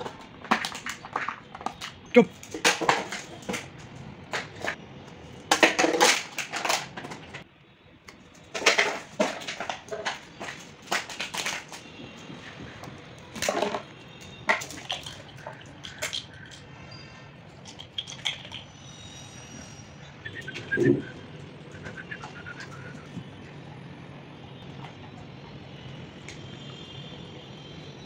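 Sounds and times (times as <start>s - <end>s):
dog chewing plastic bottle: 0.0s - 4.8s, 5.4s - 7.4s, 8.1s - 16.7s, 17.5s - 18.7s, 20.3s - 23.7s, 24.5s - 25.6s.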